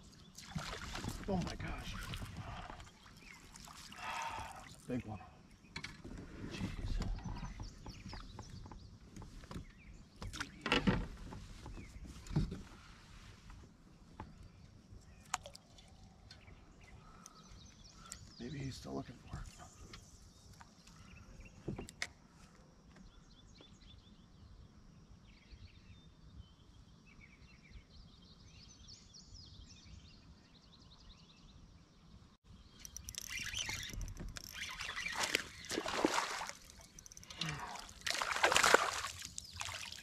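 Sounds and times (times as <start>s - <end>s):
birds chirping and singing: 1.2s - 10.7s, 32.5s - 39.8s
fish splashing at the surface: 34.7s - 40.0s.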